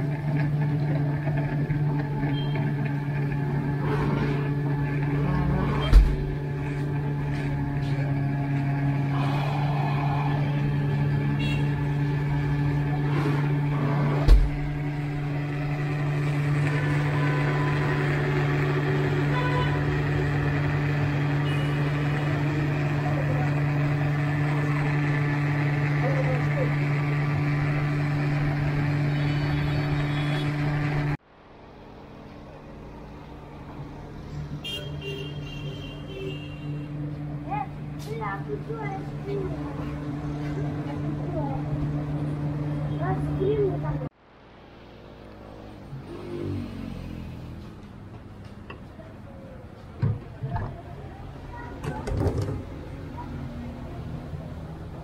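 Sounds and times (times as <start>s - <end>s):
electric blender motor whirring: 0.0s - 31.2s
machine hum: 0.0s - 34.7s
faint street background noise: 0.0s - 55.0s.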